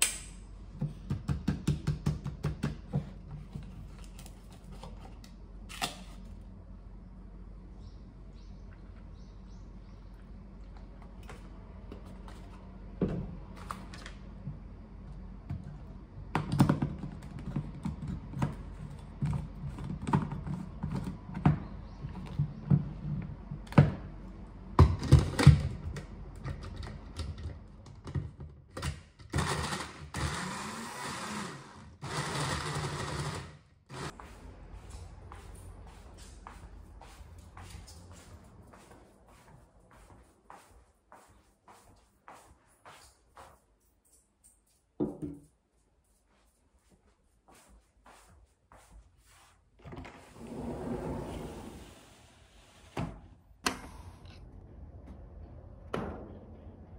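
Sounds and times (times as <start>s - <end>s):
blender motor running: 29.4s - 34.1s.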